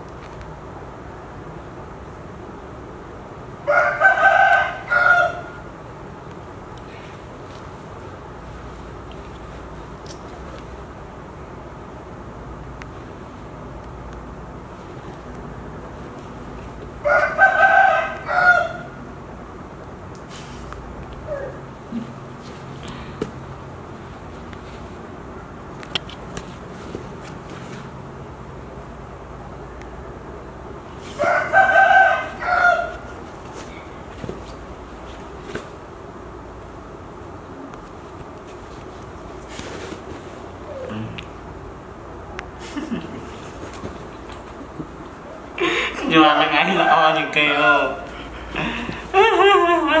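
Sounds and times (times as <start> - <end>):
rooster crowing: 3.6 - 5.7, 17.0 - 19.0, 31.1 - 33.2, 46.2 - 48.0.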